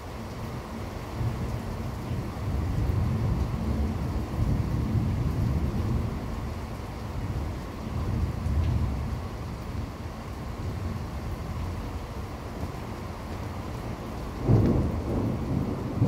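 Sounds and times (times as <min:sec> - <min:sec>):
rolling thunder: 0:14.4 - 0:16.0.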